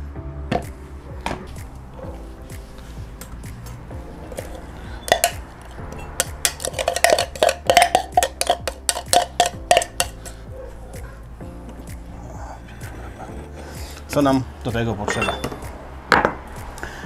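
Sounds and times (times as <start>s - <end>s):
kitchen utensils knocking and clinking: 4.4s - 5.4s, 6.0s - 10.4s, 15.1s - 16.4s.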